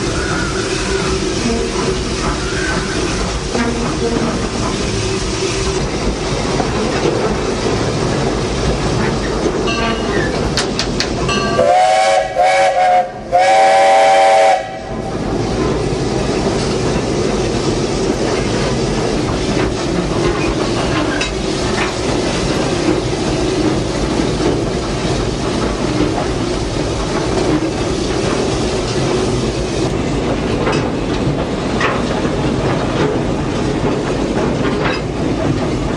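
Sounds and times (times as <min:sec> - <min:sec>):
steam locomotive rumbling on rails: 0:00.0 - 0:35.9
steam whistle blasts: 0:11.6 - 0:15.0.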